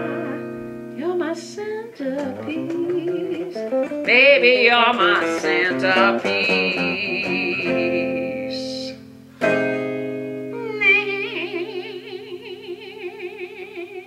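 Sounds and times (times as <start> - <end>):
guitar chord ringing: 0.0 - 1.6, 2.3 - 13.6
person humming: 4.5 - 9.0, 10.6 - 14.0
sung note with vibrato: 10.6 - 12.8.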